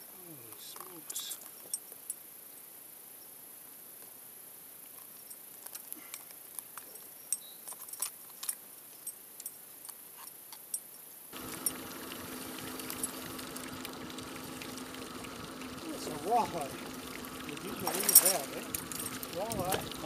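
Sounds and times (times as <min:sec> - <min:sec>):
outboard motor hum: 0:11.3 - 0:20.0.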